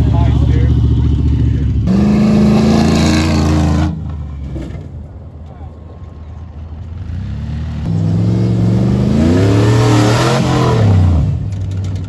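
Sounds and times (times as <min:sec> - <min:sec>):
truck engine revving past: 0:00.7 - 0:04.8, 0:06.9 - 0:11.4.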